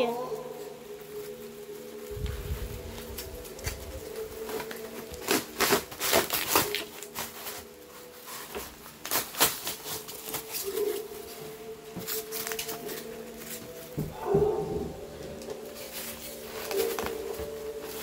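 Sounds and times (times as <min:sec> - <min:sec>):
puppy scratching and crunching foam: 0:03.0 - 0:14.5, 0:15.6 - 0:18.0.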